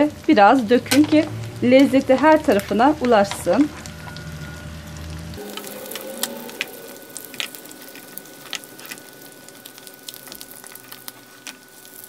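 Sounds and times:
butter sizzling in a frying pan: 0.3 - 12.0
sharp crackles: 5.0 - 12.0.

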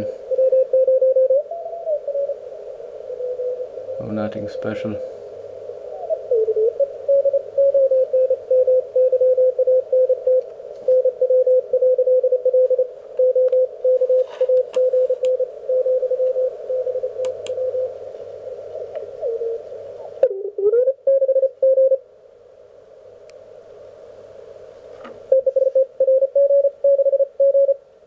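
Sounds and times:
low background noise: 0.0 - 28.0
morse code tone: 0.3 - 1.4, 6.6 - 17.9, 25.3 - 27.8.

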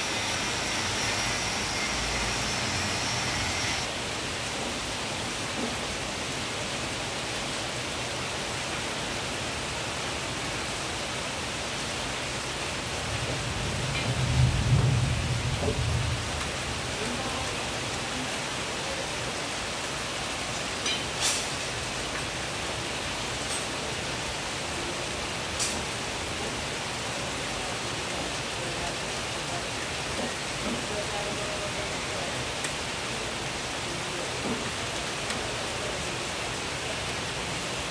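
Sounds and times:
rain falling: 0.0 - 37.9.

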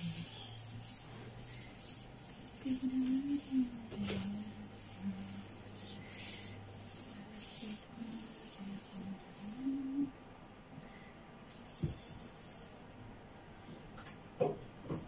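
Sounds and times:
rhythmic rubbing strokes: 0.0 - 10.0.

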